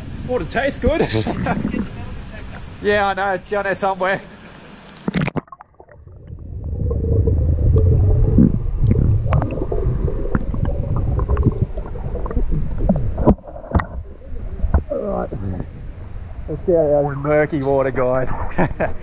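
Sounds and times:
underwater gurgling rumble: 0:00.0 - 0:02.8, 0:05.1 - 0:19.0
water splashing: 0:00.0 - 0:19.0
underwater clicks: 0:04.8 - 0:06.3, 0:07.7 - 0:15.7.

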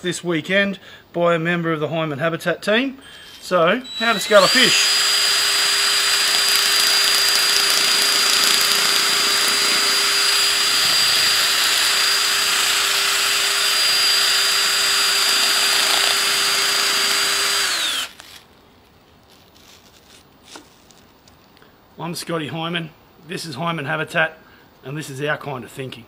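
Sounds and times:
cordless drill whining: 0:03.2 - 0:18.4.

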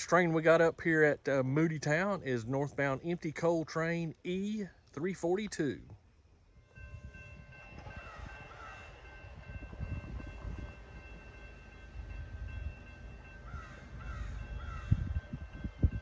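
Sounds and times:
crossing warning bell ringing: 0:06.2 - 0:16.0.

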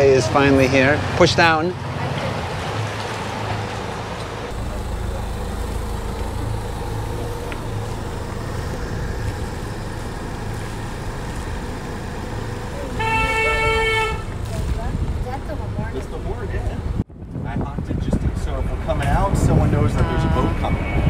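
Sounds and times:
diesel engines running: 0:00.0 - 0:17.0
loud horn blast: 0:12.8 - 0:14.5.

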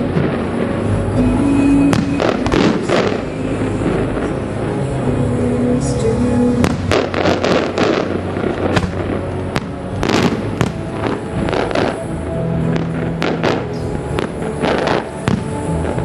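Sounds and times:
fireworks bangs and crackles: 0:00.0 - 0:16.0
music playing: 0:00.0 - 0:16.0.

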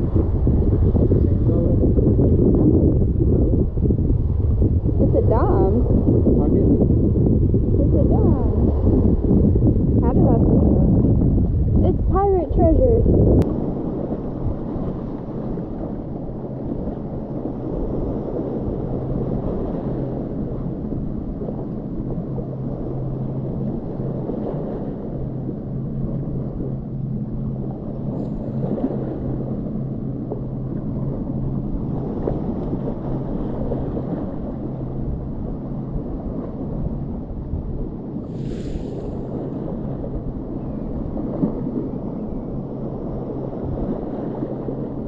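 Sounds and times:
low hum: 0:00.0 - 0:45.0.

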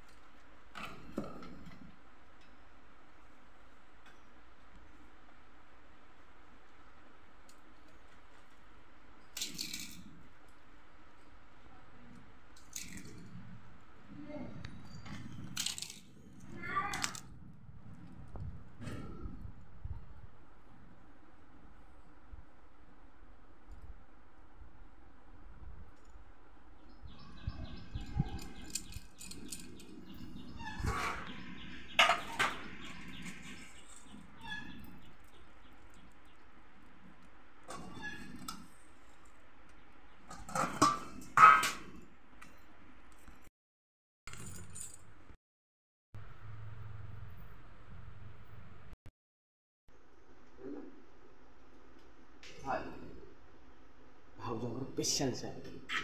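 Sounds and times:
crackers crumbling: 0:15.5 - 0:16.1.

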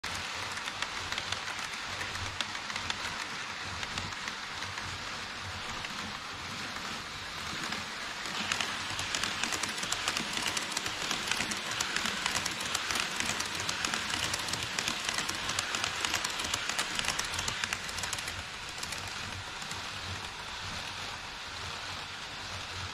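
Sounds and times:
model train rolling hiss: 0:00.1 - 0:22.9
wheels clicking over rail joints: 0:07.6 - 0:20.4.

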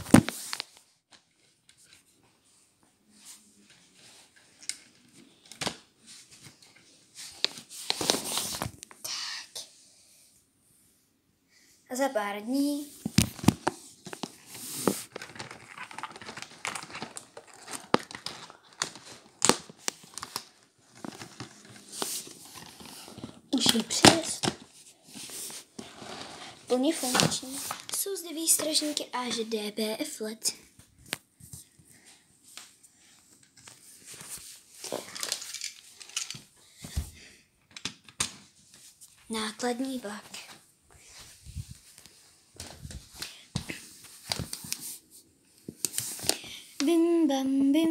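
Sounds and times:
rustling and crinkling: 0:00.0 - 0:09.0, 0:12.8 - 0:29.5, 0:33.4 - 0:37.2, 0:38.3 - 0:47.0.

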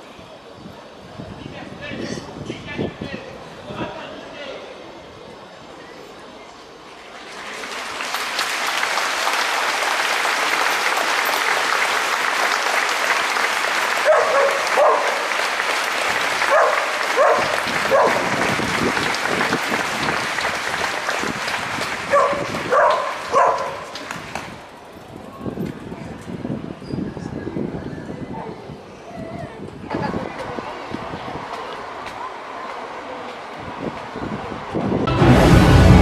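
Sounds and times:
large crowd applauding: 0:07.1 - 0:24.6.

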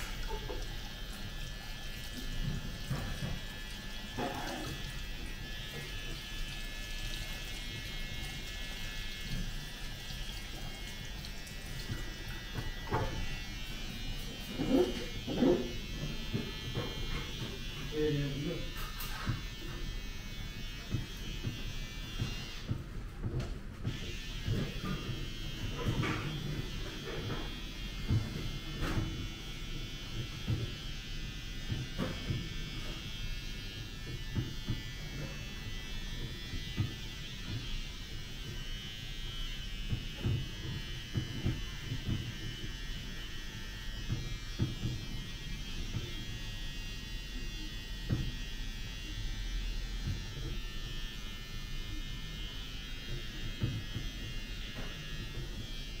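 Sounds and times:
hair scrubbing rubbing and thumps: 0:00.0 - 0:20.0
small electric motor buzzing: 0:00.0 - 0:56.0.

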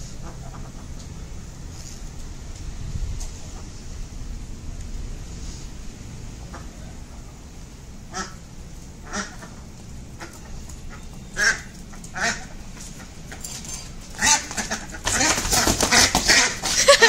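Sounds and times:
duck quacking: 0:00.0 - 0:01.0, 0:06.4 - 0:06.9, 0:08.1 - 0:08.4, 0:09.0 - 0:13.4, 0:14.2 - 0:17.0.

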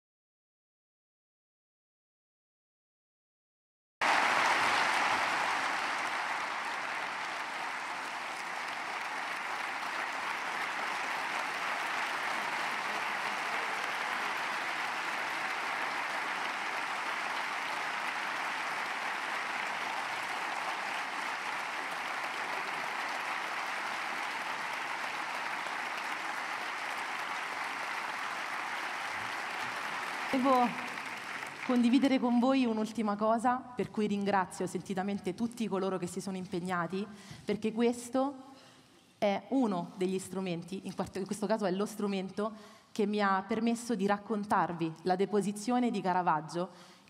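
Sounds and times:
audience applauding: 0:04.0 - 0:32.3.

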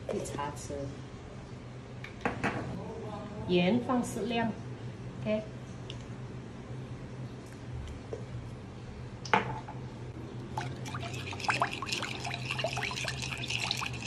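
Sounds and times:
liquid sloshing: 0:10.4 - 0:14.0.

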